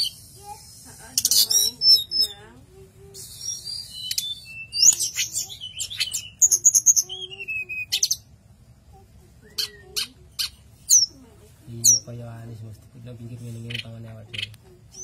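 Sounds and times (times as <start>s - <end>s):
bird singing whistles and trills: 1.3s - 2.4s, 3.2s - 8.2s.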